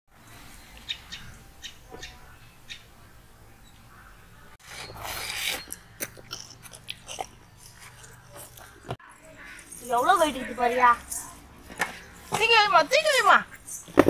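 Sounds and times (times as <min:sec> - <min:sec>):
sucking and biting smacks: 0:05.5 - 0:08.7.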